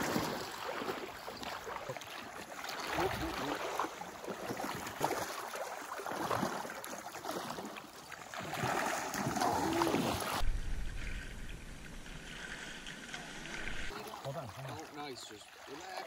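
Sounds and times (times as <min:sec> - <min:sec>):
person wading through river: 0:00.0 - 0:16.0
river flowing: 0:00.0 - 0:16.0
low rumble: 0:10.4 - 0:13.9.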